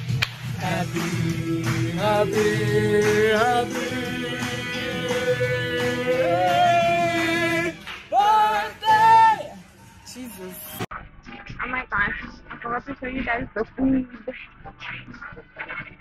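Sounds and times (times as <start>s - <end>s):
person singing long sliding notes: 0.6s - 9.2s.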